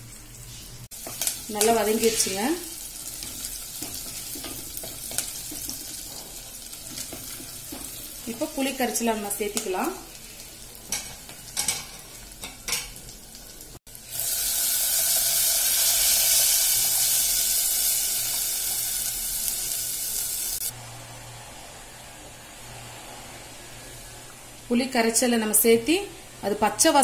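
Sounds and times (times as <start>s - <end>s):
loud oil sizzle: 0.0s - 21.0s.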